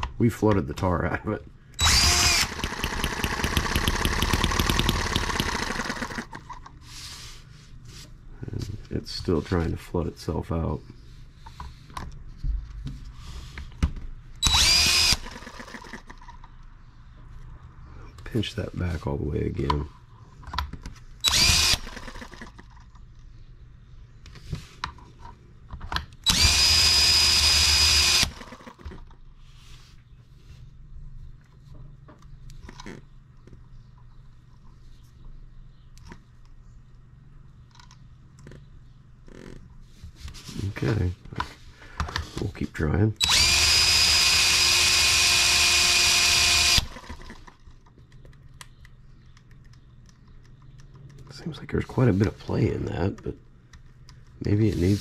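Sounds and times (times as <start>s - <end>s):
cordless drill spinning: 1.8s - 6.4s, 14.4s - 16.1s, 21.2s - 22.6s, 26.2s - 28.8s, 43.2s - 47.5s.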